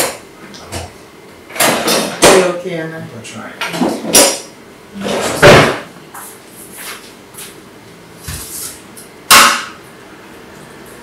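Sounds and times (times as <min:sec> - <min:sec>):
dishes and utensils clattering: 0:05.0 - 0:05.8
loud clunk: 0:05.1 - 0:05.9.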